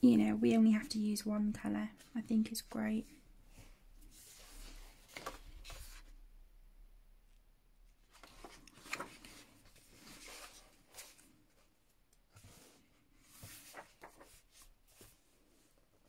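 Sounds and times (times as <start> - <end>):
paper pages being turned: 4.1 - 6.1, 8.1 - 11.4, 13.2 - 15.2.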